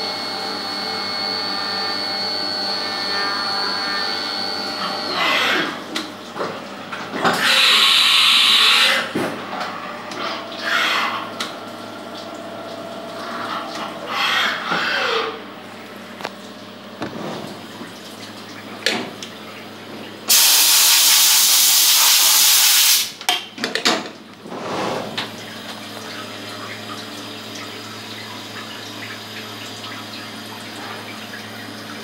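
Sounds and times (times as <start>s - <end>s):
milling machine humming: 0.0s - 18.0s
hissing spray: 20.3s - 23.1s.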